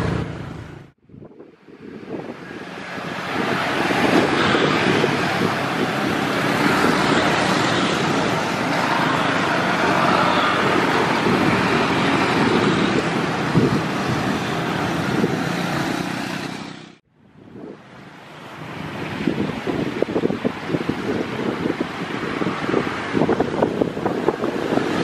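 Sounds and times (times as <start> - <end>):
motorcycle engine: 0.0 - 1.0
car engines: 0.0 - 25.0
traffic noise: 0.0 - 25.0.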